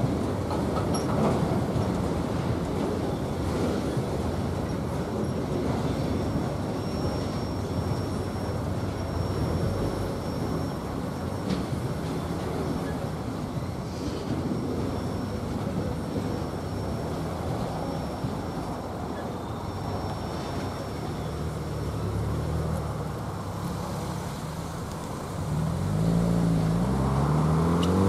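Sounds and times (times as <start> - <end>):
freight train wheels rumbling on rail: 0.0 - 28.0.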